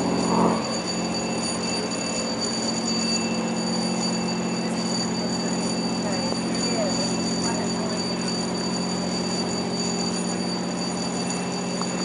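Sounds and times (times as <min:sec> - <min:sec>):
diesel engines idling: 0:04.6 - 0:11.1.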